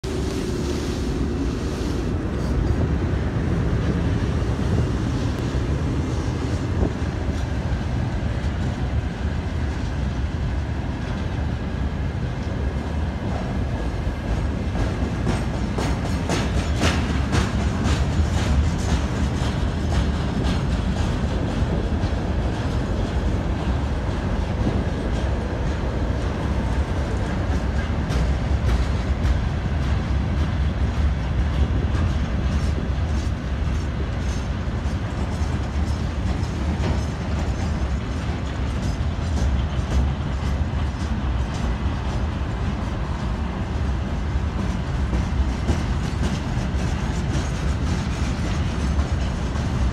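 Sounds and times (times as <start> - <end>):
train wheels rumbling on rails: 0.0 - 49.9
clickety-clack over rail joints: 1.2 - 49.9.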